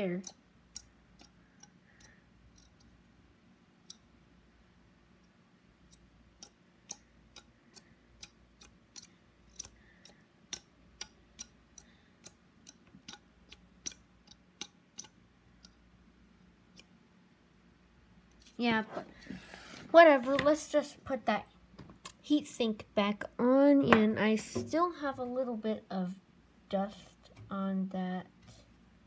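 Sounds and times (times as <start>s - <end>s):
plastic fan clicking and ticking: 0.0s - 3.0s, 5.2s - 15.8s
faint steady hum: 0.0s - 29.0s.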